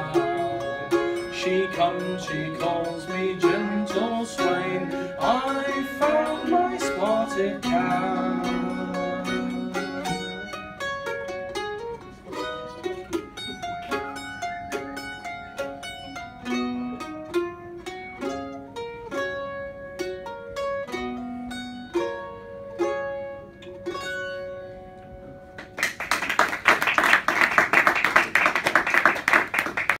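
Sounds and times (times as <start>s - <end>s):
solo mandolin playing: 0.0s - 25.8s
audience applause: 25.6s - 30.0s.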